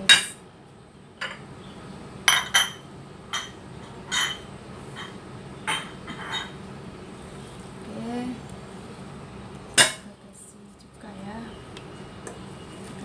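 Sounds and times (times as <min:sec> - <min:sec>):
metal bowl clinking on table: 0:02.3 - 0:06.6.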